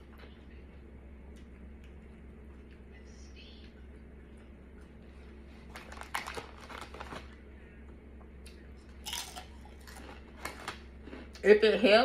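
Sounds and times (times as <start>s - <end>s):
chip bag crinkling: 5.7s - 7.4s
chips crunching: 5.7s - 7.4s, 8.9s - 11.4s.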